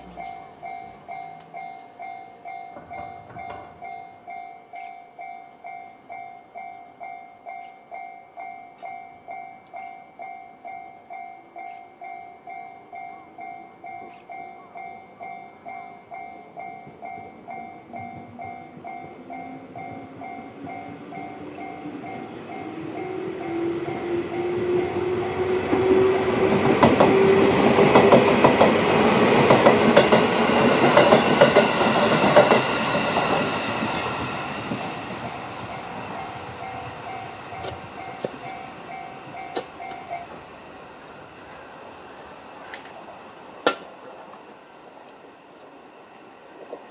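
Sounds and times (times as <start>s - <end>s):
train rumble: 0.0s - 4.4s, 11.8s - 46.9s
level-crossing warning bell: 0.0s - 43.4s
train hum: 0.0s - 46.9s
wheel clacks over rail joints: 2.7s - 4.0s.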